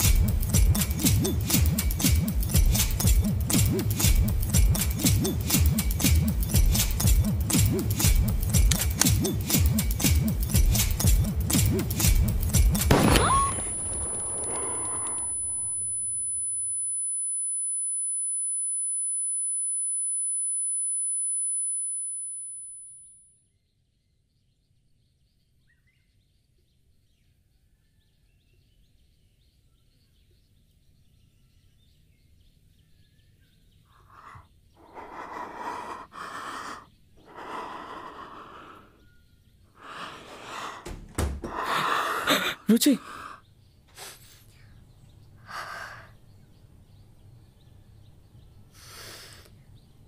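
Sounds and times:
high-pitched ringing tone: 13.5 - 23.5
person gasping: 39.8 - 43.4.

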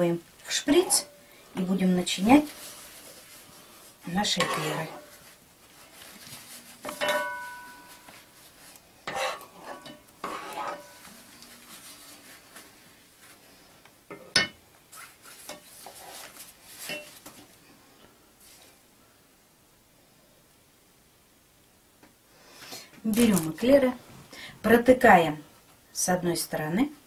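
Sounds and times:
metal spoon scraping a pot: 0.6 - 1.1, 4.2 - 5.2, 9.0 - 11.6
spoon knocking on pot: 6.9 - 7.9.

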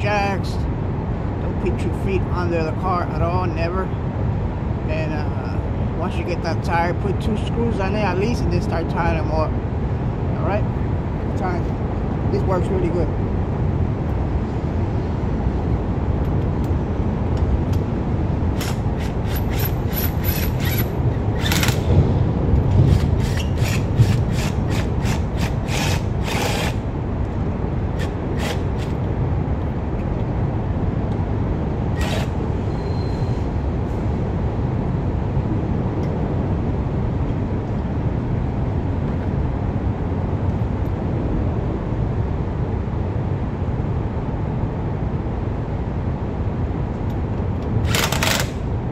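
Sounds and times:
steady low rumble: 0.0 - 48.9
impact wrench bursts: 18.6 - 21.9, 22.8 - 26.8, 28.0 - 29.0, 32.0 - 32.4, 47.8 - 48.6.

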